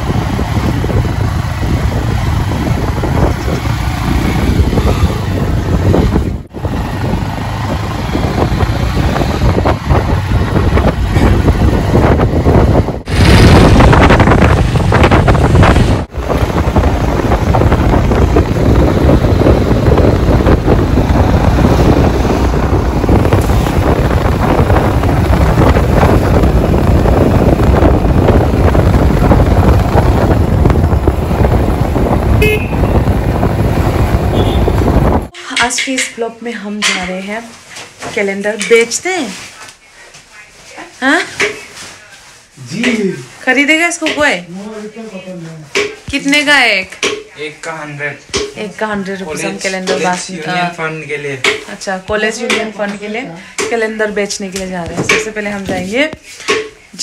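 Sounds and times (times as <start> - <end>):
wind rumbling on microphone: 0.0 - 35.4
road noise: 0.0 - 57.0.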